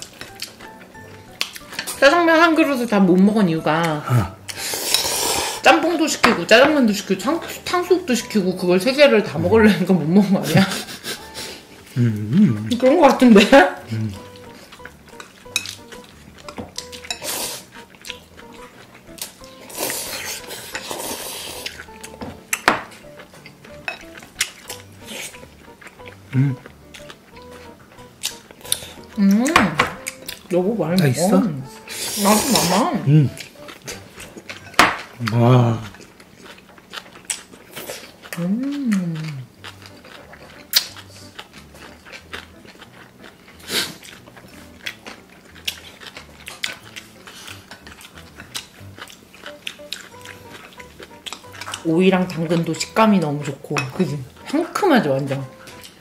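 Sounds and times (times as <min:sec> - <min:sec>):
people chewing and slurping: 0:00.0 - 0:56.0
noodles being slurped: 0:19.6 - 0:22.0, 0:42.8 - 0:44.4.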